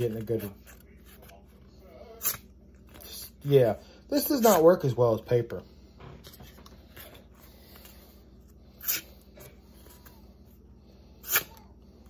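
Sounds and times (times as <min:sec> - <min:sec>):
knife slicing paper: 0:11.2 - 0:11.6.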